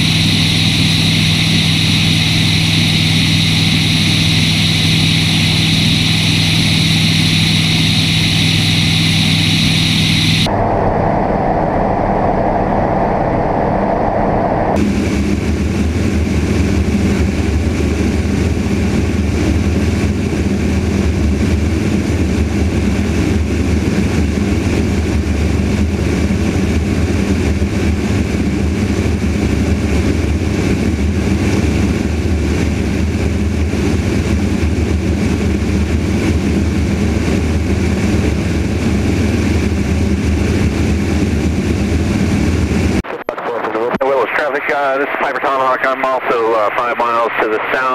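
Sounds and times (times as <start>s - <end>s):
rushing air: 0.0s - 15.1s
propeller aircraft engine droning: 0.0s - 47.9s.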